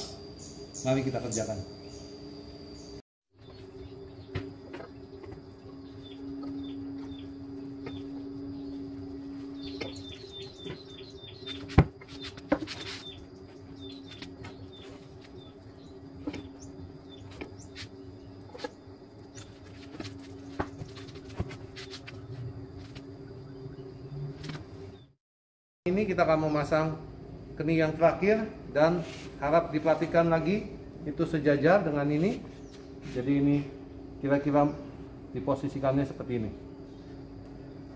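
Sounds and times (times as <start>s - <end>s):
small birds chirping: 0.0s - 21.0s, 32.1s - 35.2s
steady two-tone hum: 0.0s - 25.2s, 25.9s - 37.9s
scraping rustle: 11.4s - 13.2s.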